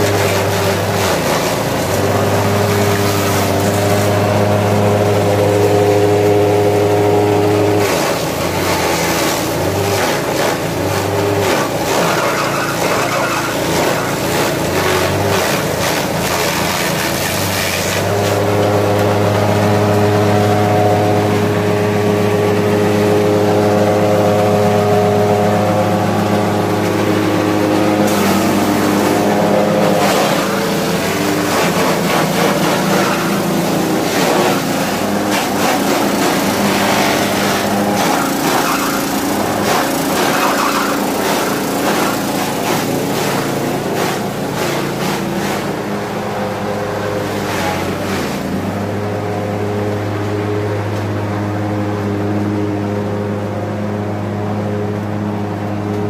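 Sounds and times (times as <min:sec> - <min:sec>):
grass chopping clatter: 0:00.0 - 0:04.4, 0:07.6 - 0:20.1, 0:28.0 - 0:45.9
grass chopper machine hum: 0:00.0 - 0:56.0.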